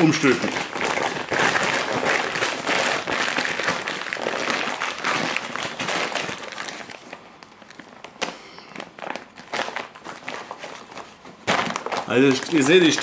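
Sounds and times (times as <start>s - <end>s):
fabric bag rustling and crinkling: 0.0s - 8.0s, 8.8s - 13.0s.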